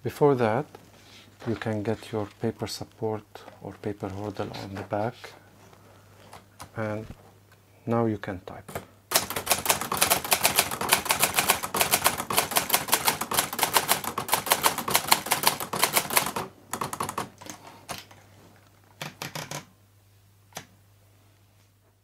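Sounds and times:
manual typewriter typing: 0:09.1 - 0:18.1, 0:19.0 - 0:19.7.

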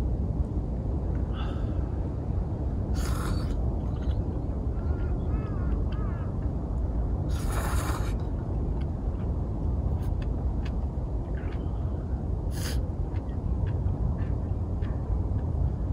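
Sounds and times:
wind buffeting microphone: 0:00.0 - 0:15.9
hissing gust: 0:02.9 - 0:03.6, 0:07.3 - 0:08.2.

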